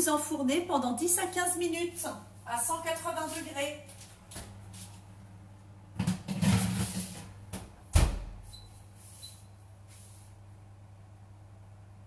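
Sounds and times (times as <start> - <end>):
baking tray scraping into oven: 6.4 - 7.2
oven door thump: 7.9 - 8.4.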